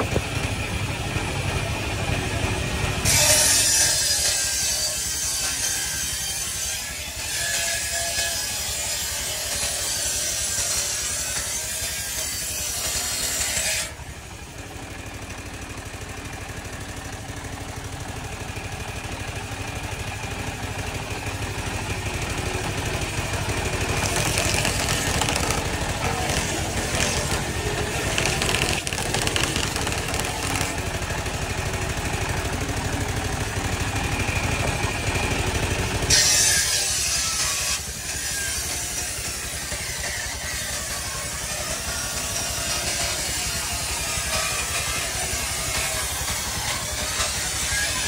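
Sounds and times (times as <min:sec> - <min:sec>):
saw bench engine chugging: 0:00.0 - 0:48.0
saw blade whine: 0:00.0 - 0:48.0
saw cutting log: 0:00.0 - 0:48.0.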